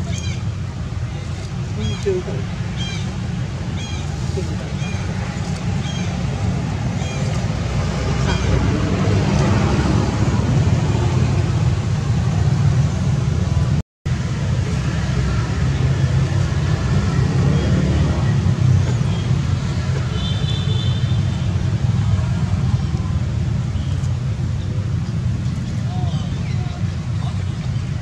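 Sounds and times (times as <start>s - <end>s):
low outdoor rumble: 0.0s - 28.0s.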